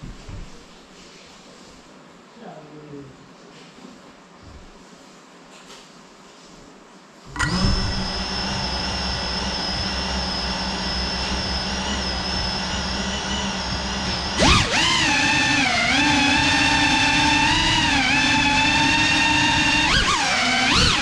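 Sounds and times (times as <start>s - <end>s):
drone motors whining: 7.3s - 21.0s.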